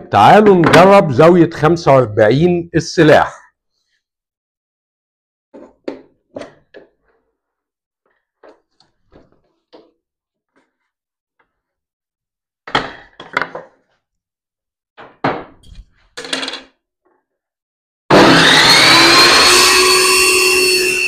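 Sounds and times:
table saw motor whine: 0:18.1 - 0:21.0.

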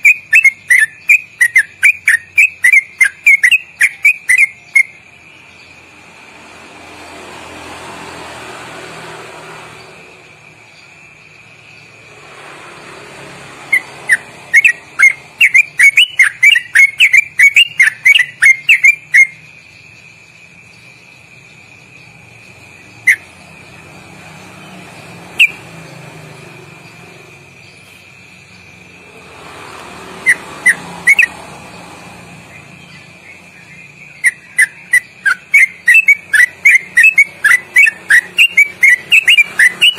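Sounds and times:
bird chattering song: 0:00.0 - 0:06.0, 0:13.6 - 0:29.2, 0:30.1 - 0:39.9
traffic noise: 0:00.0 - 0:39.9.

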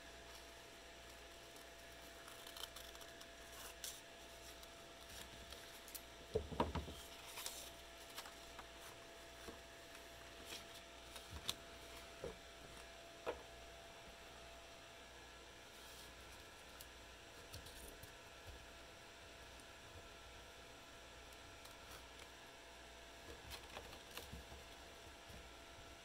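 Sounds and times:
faint steady hum: 0:00.0 - 0:26.0
paper rustling and crinkling: 0:01.2 - 0:12.9.

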